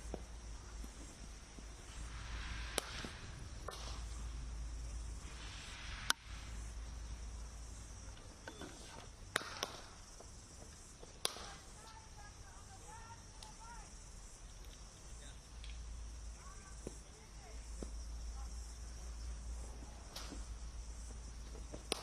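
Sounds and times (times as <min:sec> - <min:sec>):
steady hiss: 0:00.0 - 0:22.0
cricket bat hitting ball: 0:11.2 - 0:11.6.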